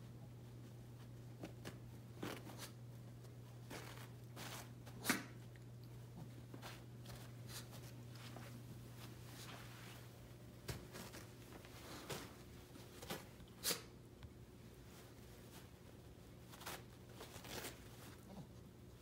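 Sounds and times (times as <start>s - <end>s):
steady low hum: 0.0s - 19.0s
dog tearing paper towel: 16.4s - 18.2s.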